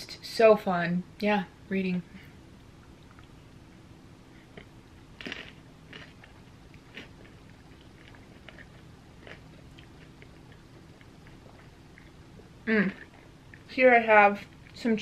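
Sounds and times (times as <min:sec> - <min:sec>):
person chewing ice cream: 0:04.4 - 0:13.7
short crisp crunches: 0:04.6 - 0:06.2.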